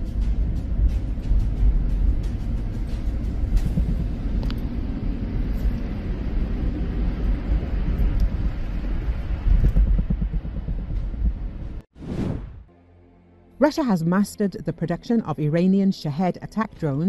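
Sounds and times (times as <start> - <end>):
car road and engine noise: 0.0 - 11.9.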